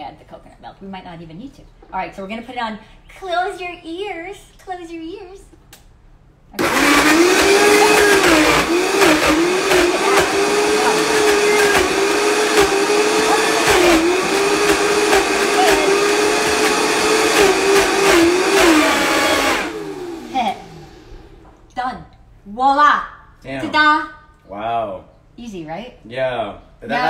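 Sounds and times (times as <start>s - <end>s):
blender running at high speed: 6.6s - 21.4s.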